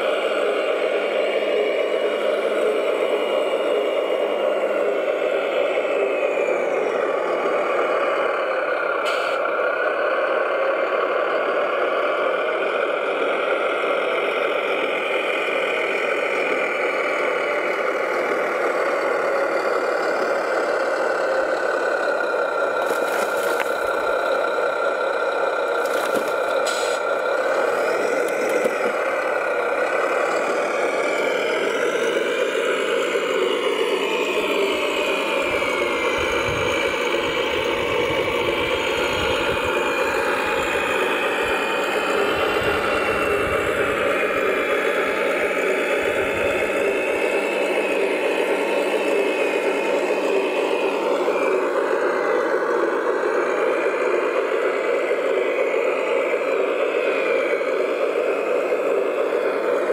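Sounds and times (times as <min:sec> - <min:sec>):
model machine motor running: 0:13.1 - 0:59.9.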